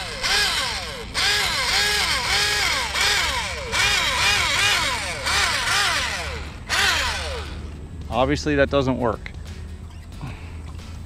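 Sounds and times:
small electric motor whining: 0.0 - 7.8.

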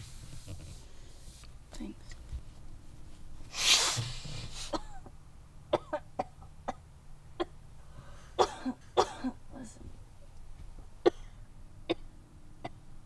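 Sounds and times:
woman coughing: 4.7 - 5.1, 5.7 - 6.8, 8.4 - 9.8
woman breathing roughly: 7.9 - 8.4.

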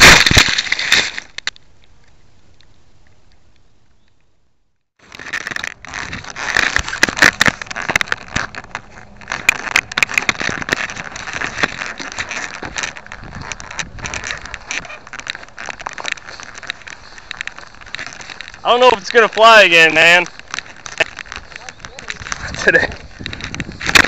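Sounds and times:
camera handling noise: 5.0 - 24.0.

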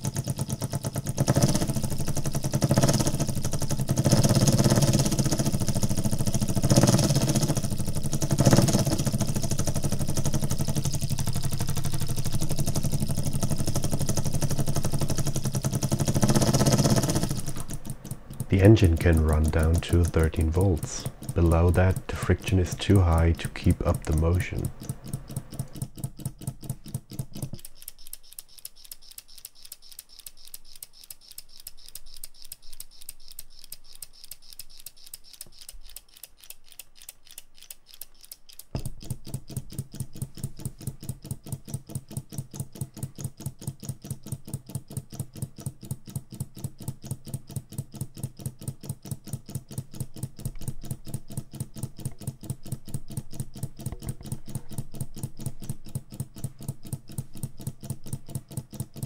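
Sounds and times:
low hum: 0.0 - 25.8
solenoid engine clicking rapidly: 0.0 - 59.0.

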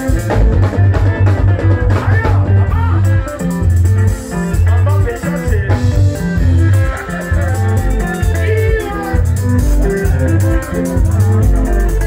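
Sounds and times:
bass and drum beat: 0.0 - 12.0
electric guitar lines: 0.0 - 12.0
live band playing: 0.0 - 12.0.

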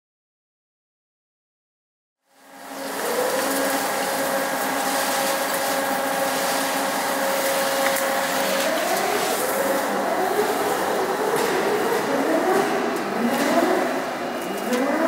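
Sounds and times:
roll forming machine whine: 2.3 - 15.0.

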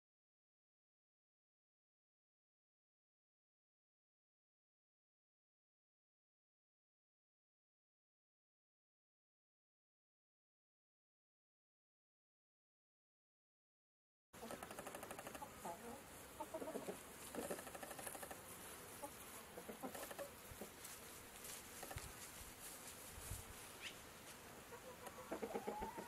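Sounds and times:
chickens clucking: 14.4 - 21.0, 24.6 - 26.0.

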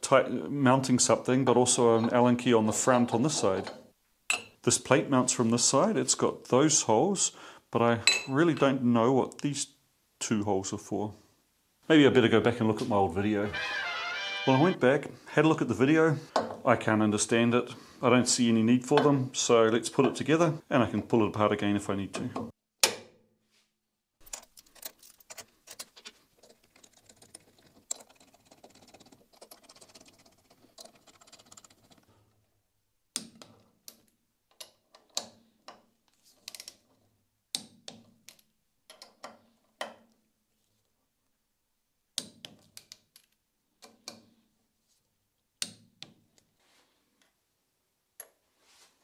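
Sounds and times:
screws and parts rattling: 24.2 - 32.3.

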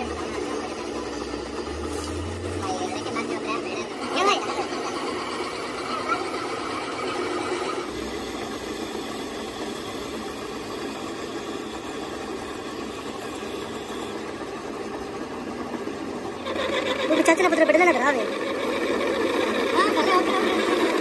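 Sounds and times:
metal lathe running: 8.1 - 14.6.

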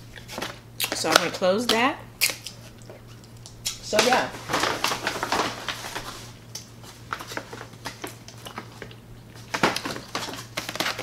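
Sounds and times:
paper bag rustling: 4.0 - 8.7.

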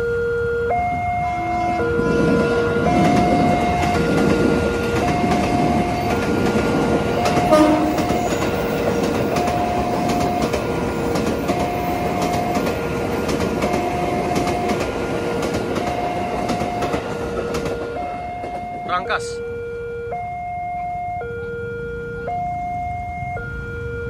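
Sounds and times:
level-crossing warning siren: 0.0 - 24.0
passing train rumble and clatter: 0.6 - 19.4.

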